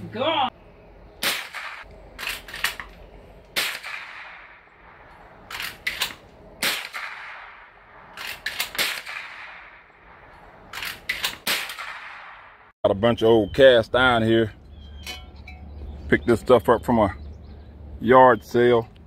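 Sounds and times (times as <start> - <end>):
rifle shots with echo: 1.2 - 2.7, 3.5 - 12.7.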